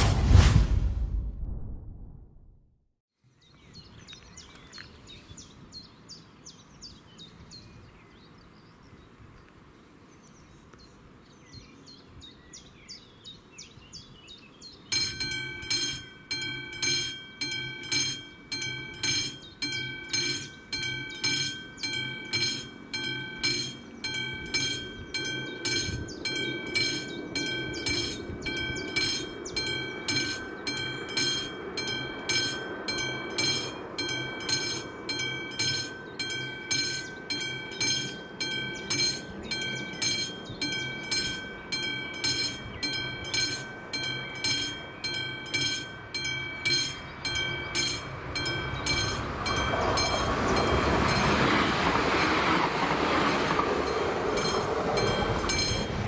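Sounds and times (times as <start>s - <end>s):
low rumble: 0.0s - 2.8s
birds singing: 3.3s - 51.6s
level crossing bell ringing: 14.9s - 52.1s, 53.3s - 56.0s.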